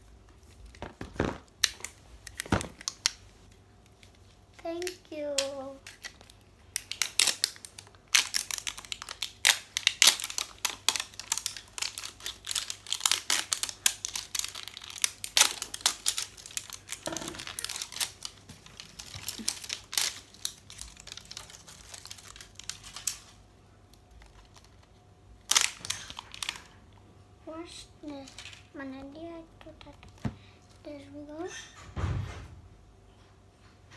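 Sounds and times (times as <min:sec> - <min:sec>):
plastic wrapping crinkling and tearing: 0:00.4 - 0:03.2, 0:03.9 - 0:26.8.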